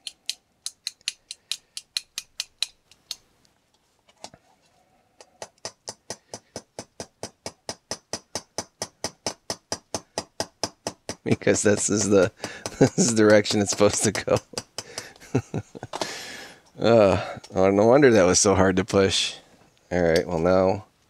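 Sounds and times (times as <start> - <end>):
hammer tapping metal pin: 5.4 - 15.3.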